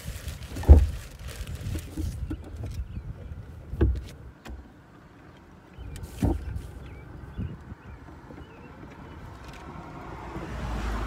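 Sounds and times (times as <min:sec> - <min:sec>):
golf cart rolling with rumble: 0:00.0 - 0:11.0.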